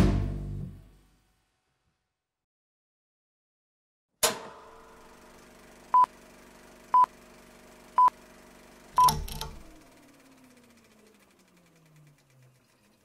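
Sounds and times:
short high beeps: 0:09.0 - 0:09.3.

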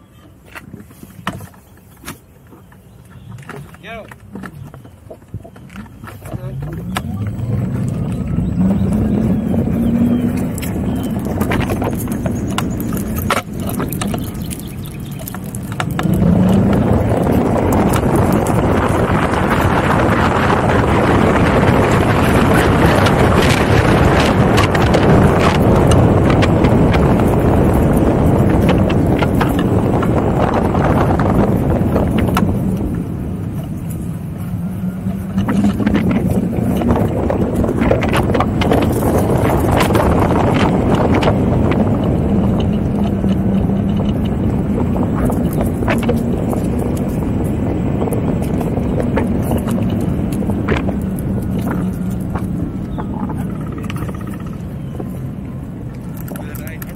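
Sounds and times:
tyre rumble on asphalt: 0:00.0 - 0:56.9
wind noise: 0:00.0 - 0:56.9
low hum: 0:02.9 - 0:56.9
clicks and rattles: 0:10.2 - 0:34.0, 0:35.2 - 0:56.9.

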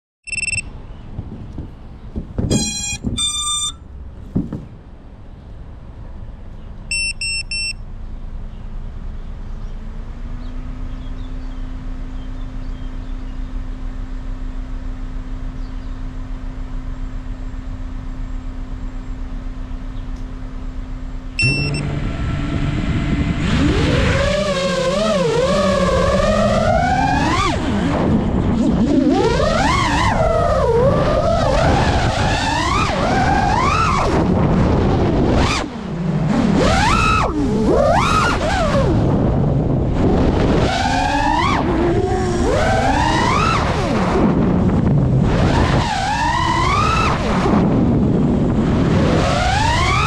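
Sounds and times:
short electronic beeps: 0:00.2 - 0:00.7, 0:02.5 - 0:03.9, 0:06.9 - 0:07.8, 0:21.4 - 0:22.4
drone motors humming: 0:00.3 - 0:06.9, 0:07.8 - 0:50.0.

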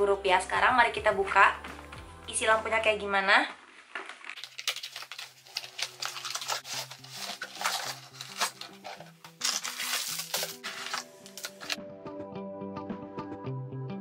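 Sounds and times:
soft background music: 0:00.0 - 0:03.3, 0:05.2 - 0:14.0
packaging rustling and crinkling: 0:03.6 - 0:11.8.

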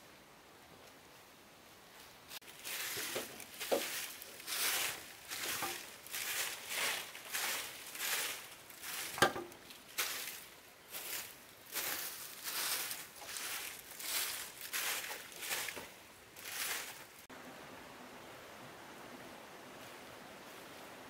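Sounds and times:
footsteps on leaf litter: 0:02.3 - 0:17.3.

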